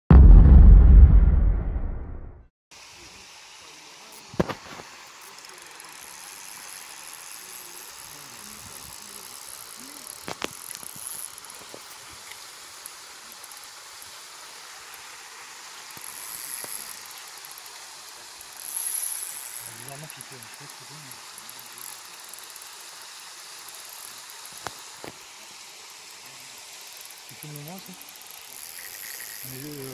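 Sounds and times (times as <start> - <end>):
outdoor hiss: 2.7 - 29.9
fishing reel whirring: 3.0 - 29.9.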